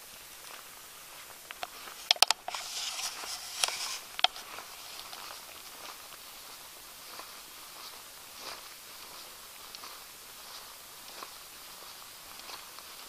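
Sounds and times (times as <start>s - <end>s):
rustling: 0.3s - 13.0s
sharp clicks: 1.5s - 2.6s, 3.6s - 4.4s.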